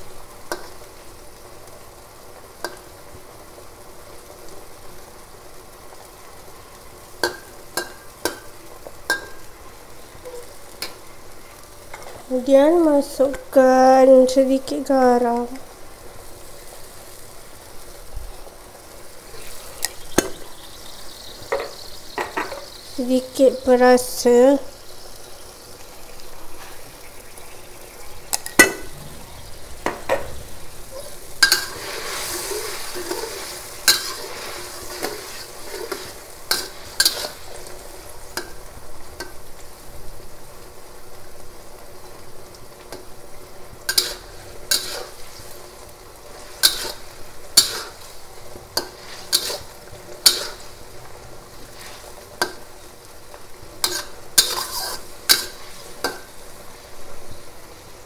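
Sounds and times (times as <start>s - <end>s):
food sizzling in a wok: 0.0s - 58.0s
metal spatula scraping a wok: 28.5s - 38.5s, 43.9s - 45.6s, 46.3s - 48.2s, 48.8s - 50.8s, 51.6s - 52.5s, 53.8s - 56.3s.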